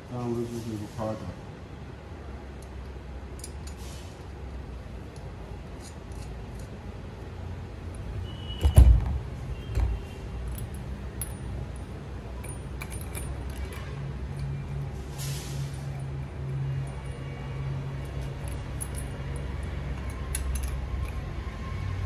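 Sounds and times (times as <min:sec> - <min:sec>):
metal parts clinking and tapping: 0:02.6 - 0:04.3, 0:05.1 - 0:06.8, 0:09.7 - 0:14.9, 0:18.0 - 0:21.4.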